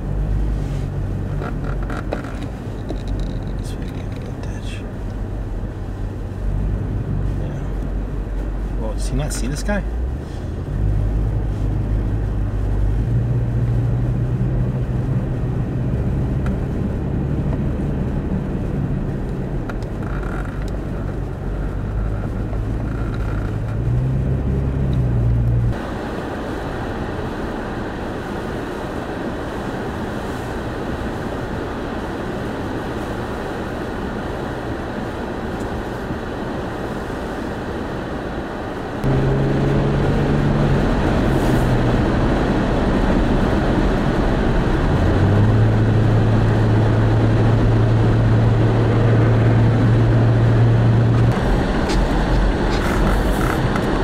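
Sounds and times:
car engine drone: 0.0s - 54.0s
road noise: 0.0s - 54.0s
strong wind gusts: 9.9s - 54.0s.

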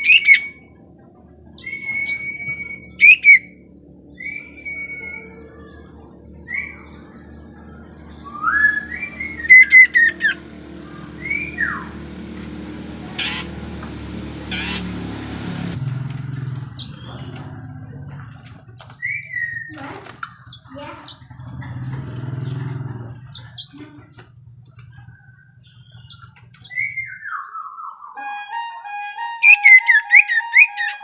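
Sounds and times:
bird whistling calls: 0.0s - 0.6s, 1.6s - 3.6s, 4.2s - 12.0s
rattling call: 13.0s - 15.1s.

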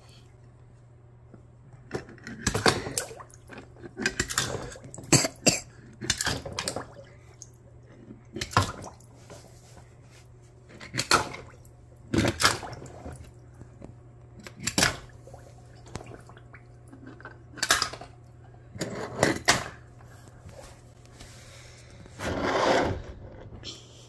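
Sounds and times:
toy cars scraping on plastic: 22.2s - 23.5s.

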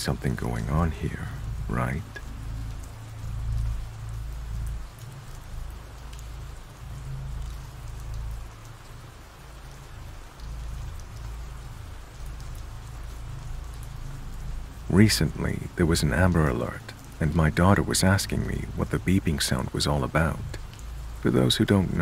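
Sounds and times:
steady rain falling: 0.0s - 22.0s.

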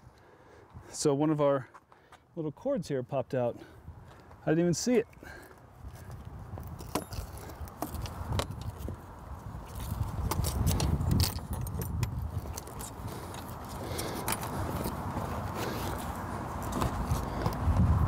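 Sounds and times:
hands clicking and scraping: 9.6s - 17.8s.

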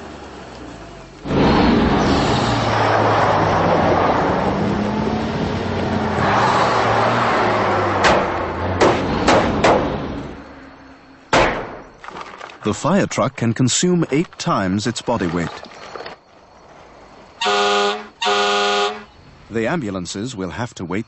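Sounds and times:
sharp thumps: 8.0s - 10.2s, 11.3s - 12.4s.

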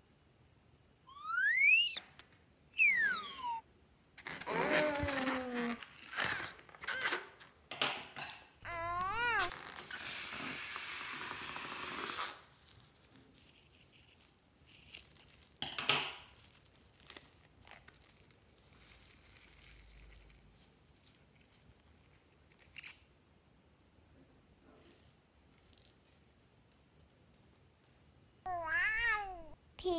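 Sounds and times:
balloon rubber crinkling: 4.2s - 7.4s, 8.7s - 10.0s
air hissing out of balloon: 9.2s - 12.5s.

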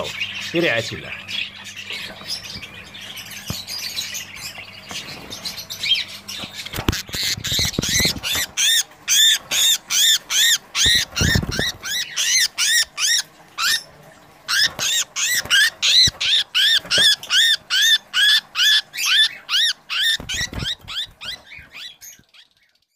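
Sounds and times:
budgerigar squawking: 5.7s - 13.9s, 14.5s - 22.2s.

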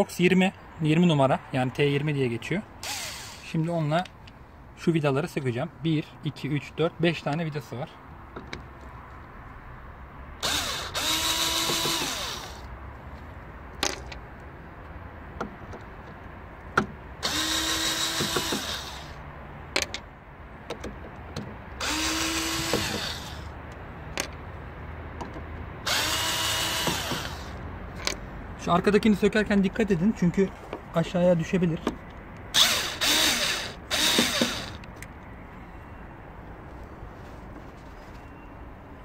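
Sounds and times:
cordless screwdriver motor whine: 10.4s - 12.7s, 17.2s - 19.2s, 21.8s - 23.5s, 25.9s - 27.6s, 32.6s - 34.8s.

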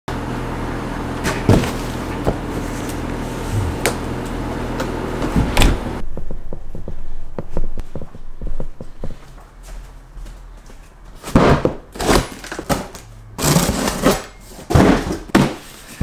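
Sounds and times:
steady low hum: 0.1s - 11.2s
soft footsteps: 6.5s - 11.2s.

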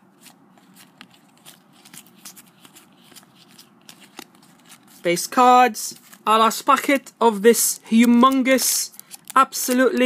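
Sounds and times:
trading cards clicking and rustling: 0.1s - 10.0s.

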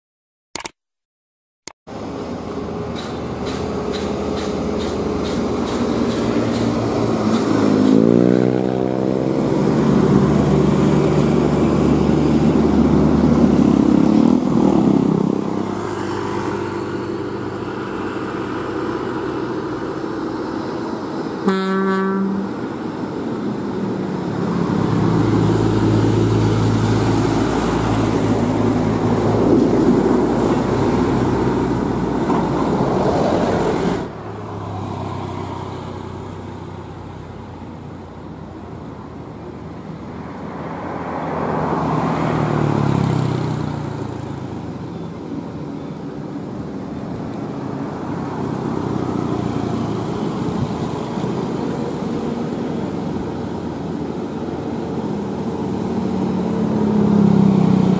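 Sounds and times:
second truck engine drone: 1.9s - 34.4s
air horn blast: 21.4s - 22.6s.

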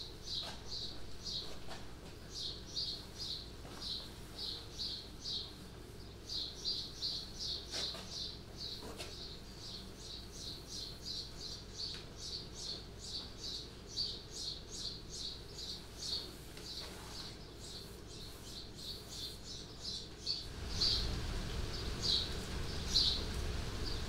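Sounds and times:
paint roller squeaking: 15.8s - 19.5s.

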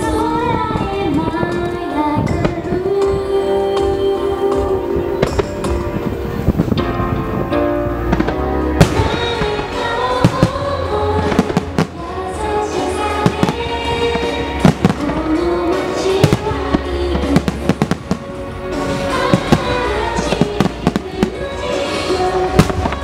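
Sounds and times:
music with long held notes: 0.0s - 23.0s.

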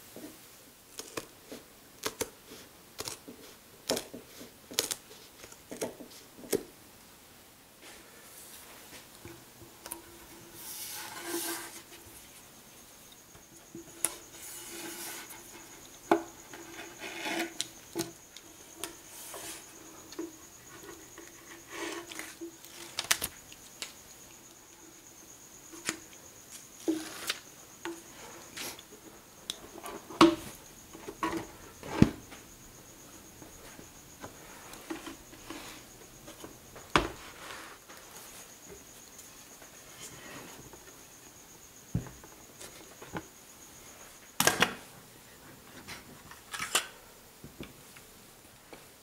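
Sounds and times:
tape rubbing and scraping: 10.3s - 12.2s, 14.0s - 15.8s, 16.4s - 18.1s.

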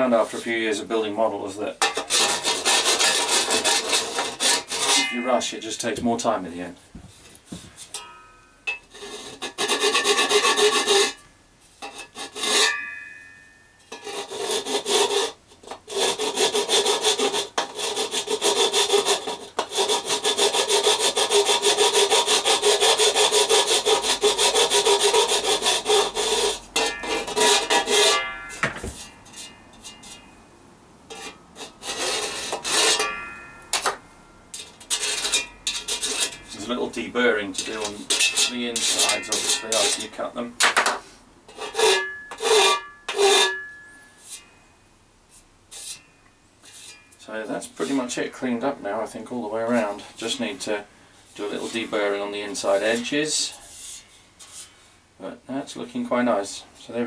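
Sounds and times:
file rasping on metal: 1.8s - 5.2s, 8.8s - 11.2s, 11.8s - 12.7s, 13.9s - 28.2s, 31.1s - 34.0s, 34.6s - 40.2s, 41.5s - 44.4s
metallic ringing tone: 4.8s - 5.6s, 7.9s - 8.9s, 12.5s - 14.0s, 25.6s - 30.5s, 32.8s - 40.2s, 41.8s - 45.1s, 45.9s - 47.3s.

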